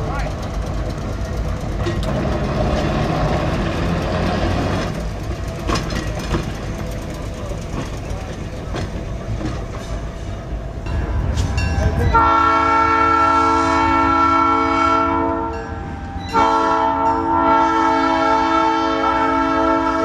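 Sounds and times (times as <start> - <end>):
train air horn blasts: 12.1 - 20.0.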